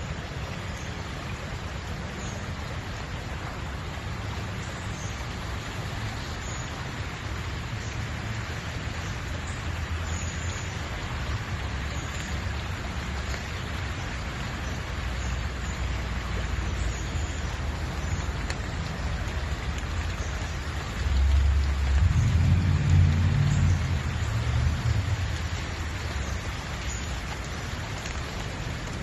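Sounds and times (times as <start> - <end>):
creek water rushing: 0.0 - 29.0
low rumble: 20.9 - 26.6.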